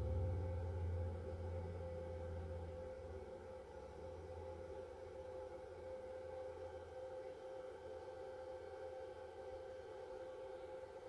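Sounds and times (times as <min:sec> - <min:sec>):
low hum: 0:00.0 - 0:06.5.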